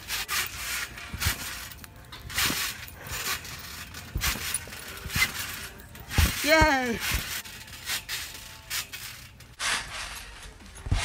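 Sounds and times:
body landing on trampoline: 4.0 - 7.4.

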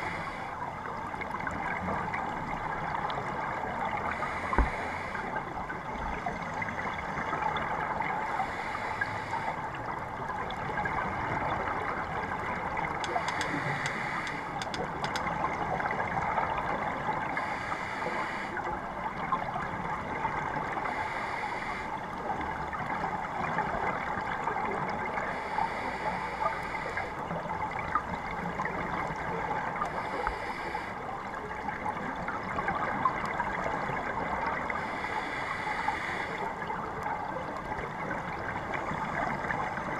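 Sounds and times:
scuba regulator breathing: 0.0 - 0.6, 4.1 - 5.4, 8.3 - 9.6, 13.0 - 15.2, 17.4 - 18.6, 20.9 - 22.0, 25.3 - 27.2, 29.9 - 31.0, 34.8 - 36.5
muffled rush of water: 0.0 - 39.9.

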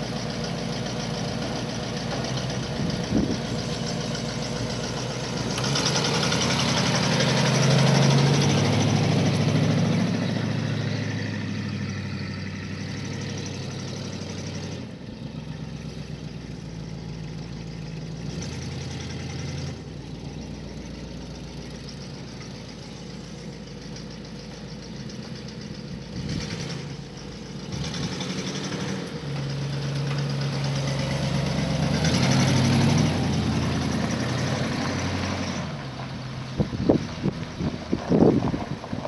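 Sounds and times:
car engine running: 0.0 - 39.0
wind buffeting microphone: 36.5 - 39.0.

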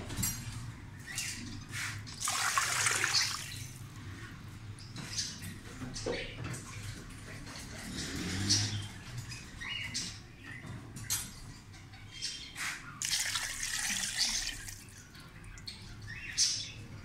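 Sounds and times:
water pouring into a pot: 2.2 - 3.8, 13.0 - 14.9.

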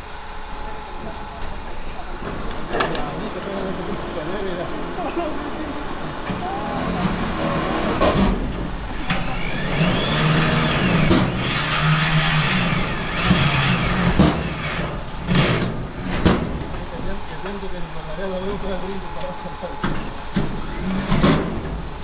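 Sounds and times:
power drill running on metal: 8.9 - 15.7.

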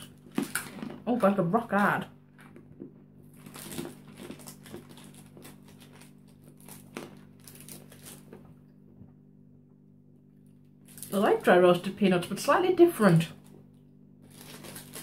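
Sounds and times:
peanuts being chewed: 0.0 - 8.5
snack packet crinkling: 0.0 - 8.6, 10.8 - 11.5, 13.4 - 15.0
steady low hum: 0.0 - 15.0.

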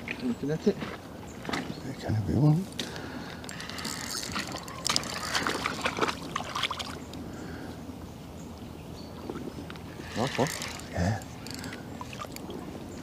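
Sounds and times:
water splashing from fish: 4.2 - 7.1, 10.0 - 12.7.

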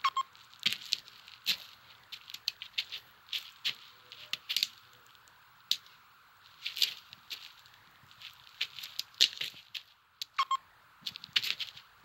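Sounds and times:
sharp clicks and crackles: 0.2 - 6.0, 6.6 - 10.4.

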